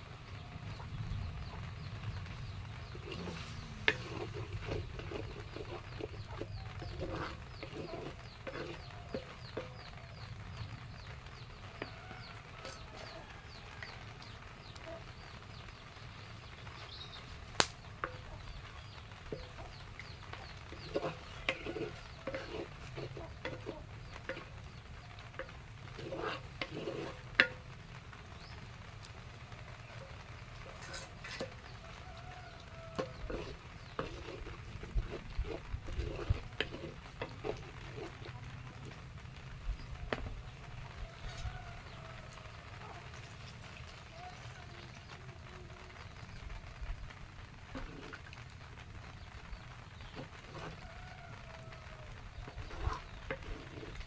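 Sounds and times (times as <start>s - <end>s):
wooden spatula scraping pot: 2.4s - 10.2s, 11.0s - 13.9s, 19.2s - 27.8s, 30.5s - 39.0s, 47.7s - 48.5s, 50.0s - 54.0s
chickens clucking: 2.5s - 13.5s, 49.5s - 54.0s.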